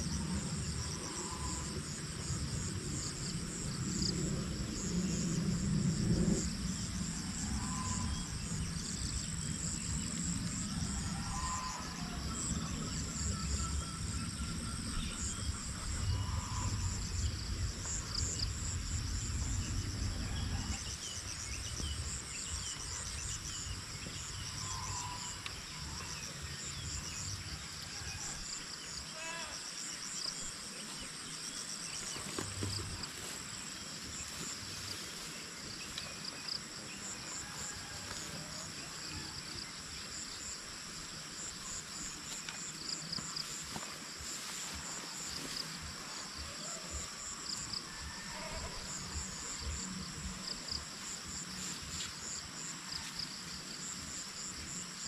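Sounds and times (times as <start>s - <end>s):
low rumble: 0.0s - 24.8s
insects trilling: 0.0s - 55.0s.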